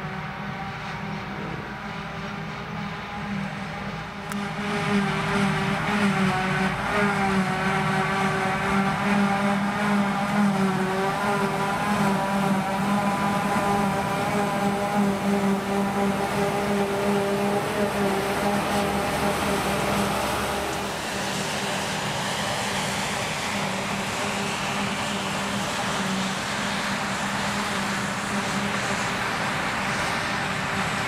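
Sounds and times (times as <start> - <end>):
distant hissy machine noise: 0.0 - 31.0
forage harvester engine humming: 0.0 - 31.0.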